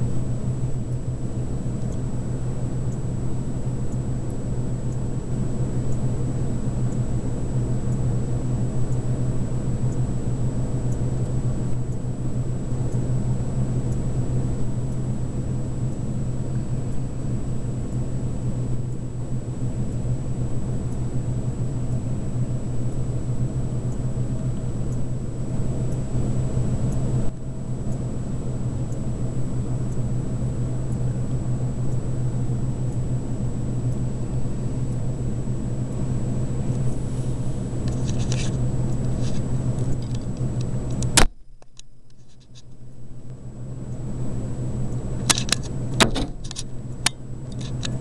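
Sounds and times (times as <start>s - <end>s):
vehicle engine running: 0.0s - 41.2s, 43.0s - 48.0s
sharp clicks: 45.2s - 48.0s.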